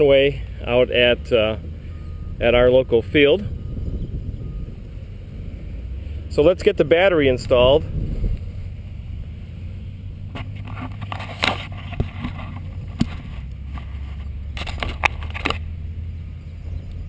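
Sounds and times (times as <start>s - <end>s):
wind rumble on microphone: 0.0s - 17.0s
handling clicks and rustles: 10.2s - 15.8s.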